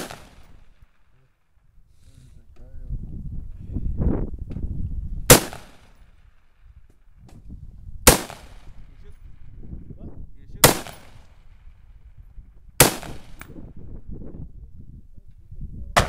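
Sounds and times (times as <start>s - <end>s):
gunshots with echoing tail: 0.0s - 0.8s, 5.3s - 6.0s, 8.1s - 8.8s, 10.6s - 11.3s, 12.8s - 13.5s.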